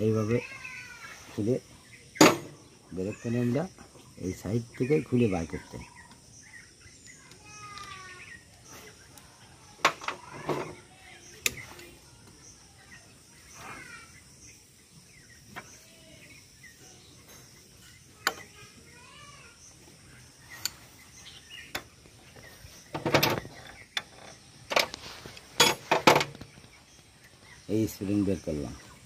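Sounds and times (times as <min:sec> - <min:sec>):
birds chirping: 0:00.0 - 0:29.0
metal tools clinking: 0:22.9 - 0:26.4.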